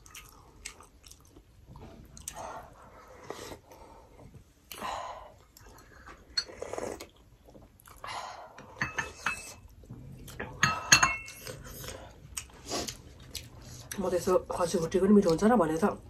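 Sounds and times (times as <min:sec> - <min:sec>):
bowls and spoon clinking: 0:08.7 - 0:09.6, 0:10.4 - 0:11.5.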